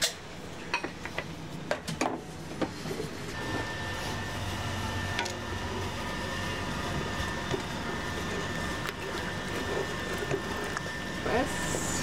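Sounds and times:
machine hum with high whine: 0:00.0 - 0:12.0
wooden spoon stirring thick sauce: 0:06.4 - 0:11.2.

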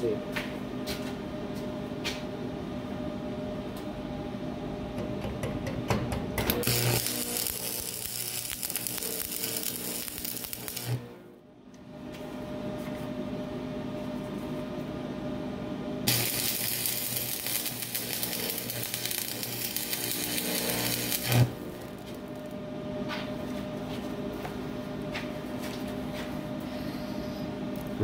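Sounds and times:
steady hum: 0:00.0 - 0:28.0
welding arc crackling and buzzing: 0:06.5 - 0:11.2, 0:16.0 - 0:22.6.

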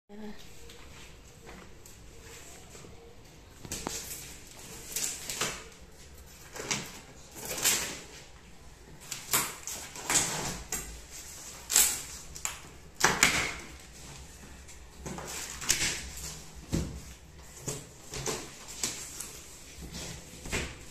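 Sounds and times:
tape and cardboard ripping: 0:09.0 - 0:13.8.

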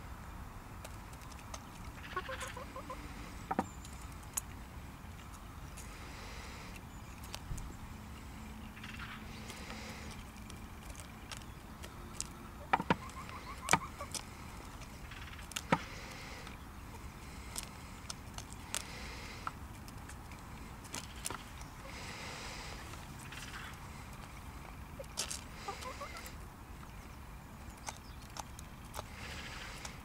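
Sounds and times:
chicken beaks tapping grain and plastic: 0:00.8 - 0:02.9, 0:09.0 - 0:16.2, 0:17.5 - 0:21.7, 0:27.7 - 0:30.0.

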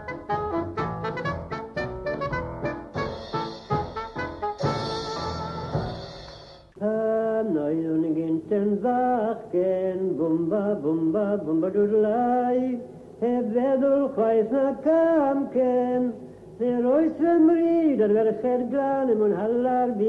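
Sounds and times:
man singing unaccompanied: 0:06.8 - 0:20.0.

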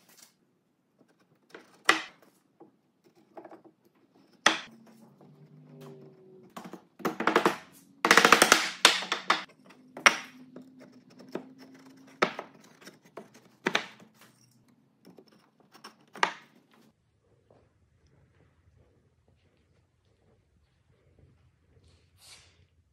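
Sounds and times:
wooden knocks and clatters: 0:06.5 - 0:14.4, 0:15.0 - 0:16.9.

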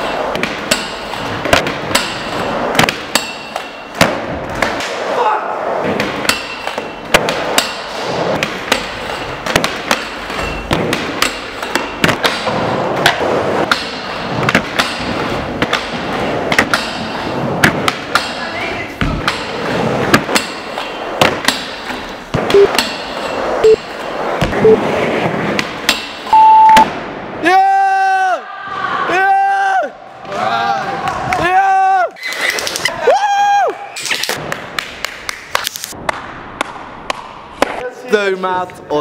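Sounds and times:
skateboard wheels rolling: 0:12.4 - 0:17.9, 0:19.5 - 0:21.2, 0:23.1 - 0:25.8.

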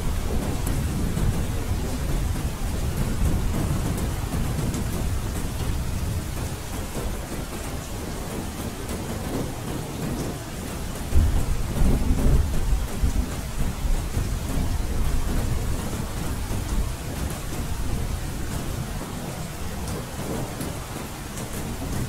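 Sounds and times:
steady rain: 0:00.0 - 0:22.0
thunder rumbling: 0:11.1 - 0:22.0.

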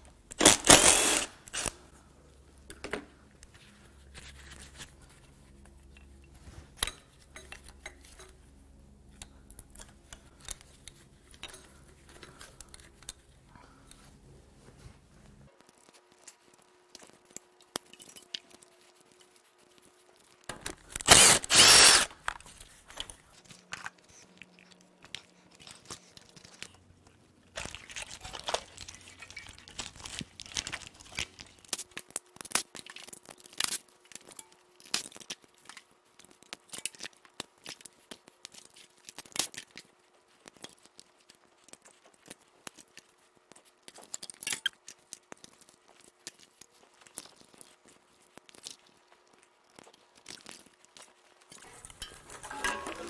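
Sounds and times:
loud harsh noises: 0:21.0 - 0:22.1.

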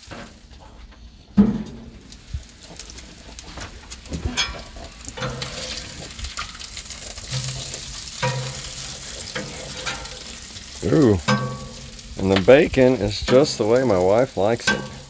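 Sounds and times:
bacon sizzling on a griddle: 0:00.0 - 0:15.0
metal spatula scraping steel: 0:04.4 - 0:10.6, 0:11.2 - 0:12.2.

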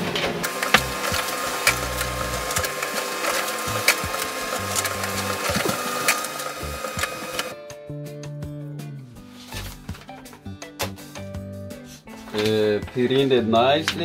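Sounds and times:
background music: 0:00.0 - 0:14.0
printer paper path clicks: 0:00.2 - 0:07.5
laser printer whining: 0:00.4 - 0:07.6.

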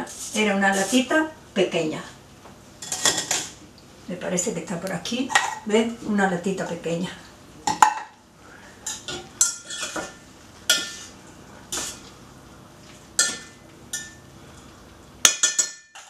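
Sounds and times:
spoon clinking in a steel pot: 0:13.2 - 0:14.2, 0:15.3 - 0:16.0.

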